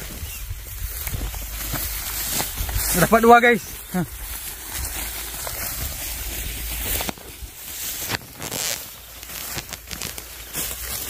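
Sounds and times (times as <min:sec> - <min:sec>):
wind on microphone: 0:00.0 - 0:03.0
plants rustling: 0:00.0 - 0:11.0.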